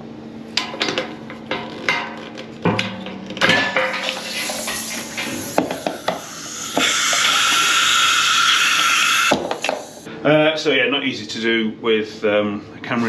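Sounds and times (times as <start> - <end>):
metal clanks and knocks: 0.6 - 6.9
loud steady hiss: 3.7 - 10.1.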